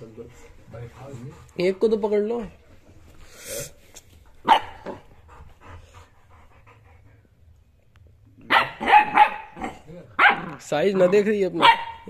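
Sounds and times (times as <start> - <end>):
small dog barking: 4.4 - 5.0, 8.4 - 12.0.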